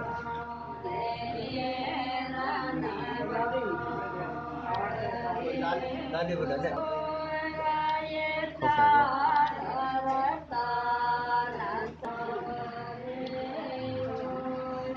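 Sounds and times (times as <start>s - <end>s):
woman singing: 7.0s - 14.9s.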